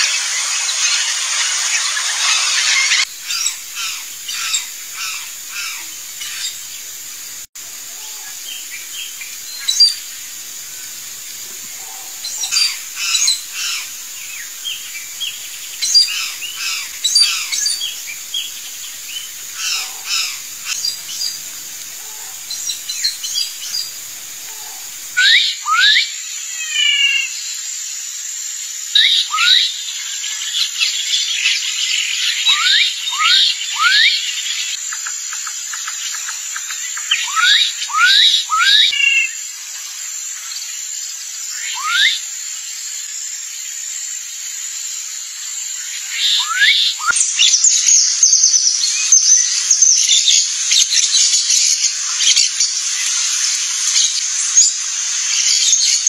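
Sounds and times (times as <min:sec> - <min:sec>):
birds chirping: 0:00.0 - 0:25.4.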